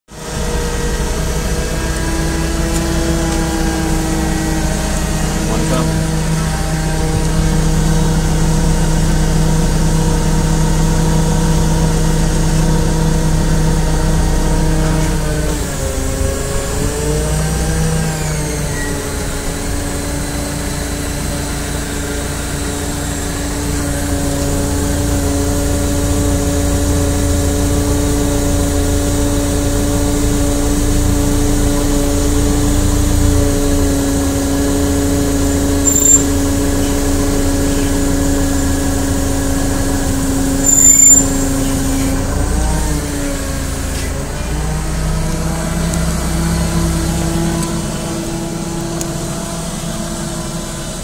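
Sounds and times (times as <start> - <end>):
forklift engine drone: 0.1 - 51.0
sharp squeak: 35.8 - 37.1, 40.6 - 42.2.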